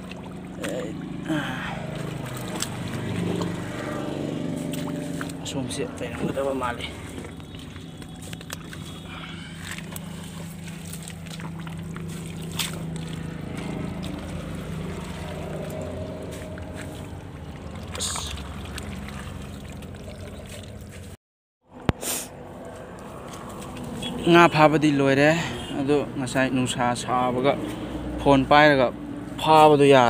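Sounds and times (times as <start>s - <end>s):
short sharp splashes: 0.0s - 5.5s, 6.1s - 21.2s
low motor hum: 0.0s - 21.2s
water sloshing and churning: 0.0s - 21.2s, 22.4s - 24.6s.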